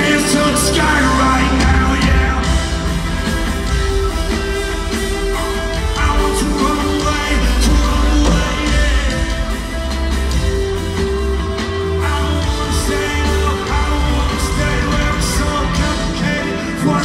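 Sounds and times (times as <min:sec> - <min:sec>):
band playing live music: 0:00.0 - 0:17.0
heavy steady bass: 0:00.0 - 0:17.0.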